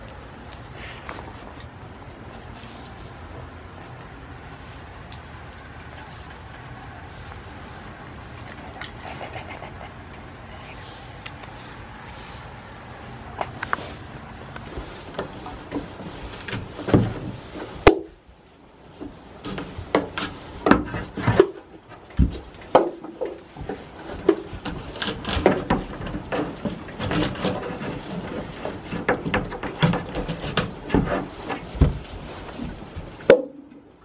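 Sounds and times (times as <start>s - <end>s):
hooves knocking on wooden shed: 11.2s - 18.3s, 18.9s - 33.9s.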